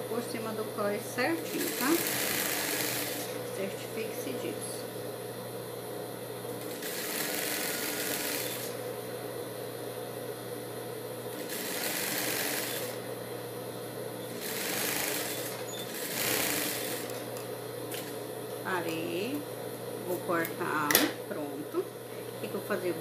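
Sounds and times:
motor hum: 0:00.0 - 0:23.0
sewing machine stitching: 0:01.5 - 0:03.3, 0:06.6 - 0:08.8, 0:11.4 - 0:13.0, 0:14.3 - 0:17.2.

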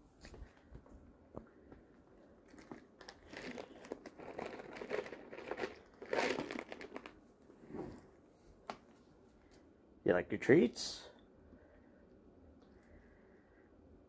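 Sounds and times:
plastic container crinkling: 0:02.4 - 0:07.2.

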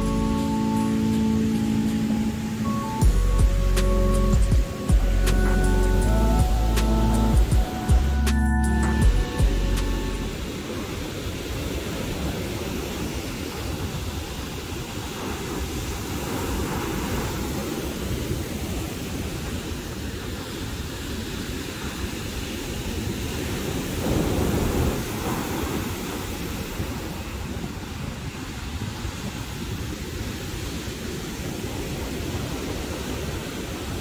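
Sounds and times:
breaking surf: 0:03.7 - 0:34.0
wind rumbling on microphone: 0:09.0 - 0:34.0.

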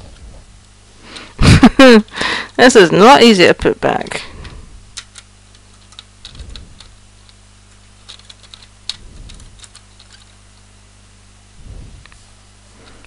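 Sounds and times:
soft low thumps: 0:11.5 - 0:12.4.

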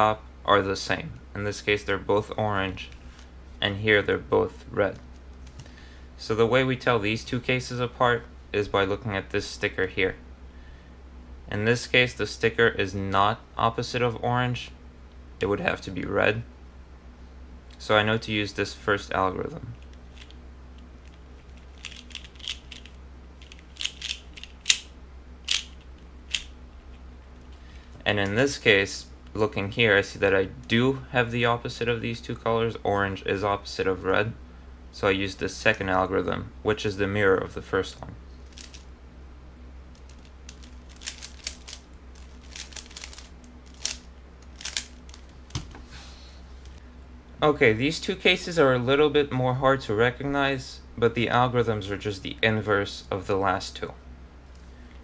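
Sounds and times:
plastic puzzle cube clicking: 0:21.8 - 0:24.8, 0:40.0 - 0:44.0, 0:44.6 - 0:45.2.

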